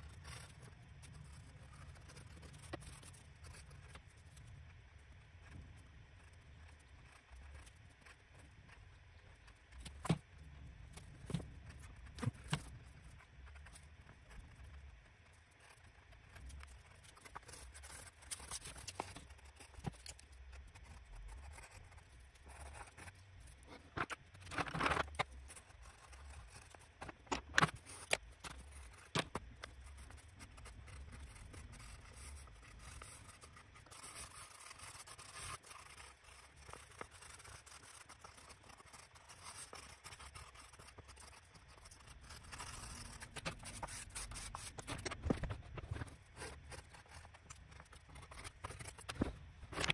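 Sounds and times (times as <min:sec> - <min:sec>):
colored pencils scratching on paper: 0:11.0 - 0:49.9.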